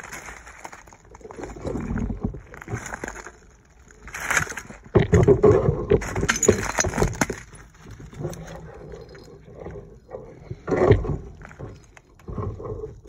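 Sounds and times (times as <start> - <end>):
dry brush rustling and snapping: 0.0 - 5.0
glass bottles clattering: 5.0 - 7.8.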